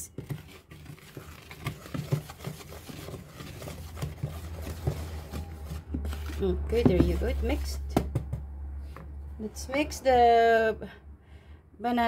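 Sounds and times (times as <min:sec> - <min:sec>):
whisk scraping plastic bowl: 0:00.0 - 0:07.8.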